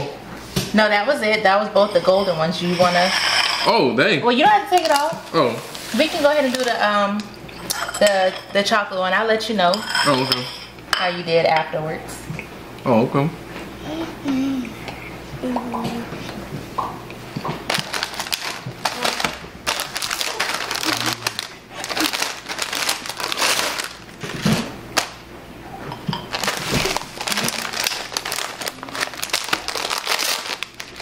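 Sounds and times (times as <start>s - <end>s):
plastic package crinkling: 17.6s - 25.2s, 26.3s - 31.0s.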